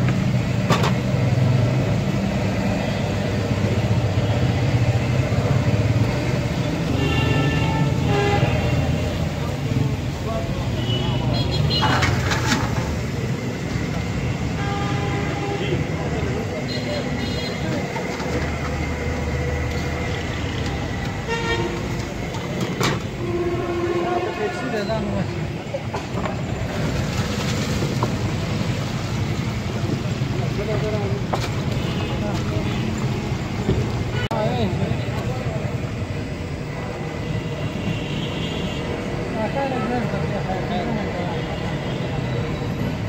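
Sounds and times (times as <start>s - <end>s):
traffic engines running: 0.0s - 43.0s
vehicle horn tooting: 6.9s - 9.0s, 21.2s - 21.9s, 23.2s - 25.1s.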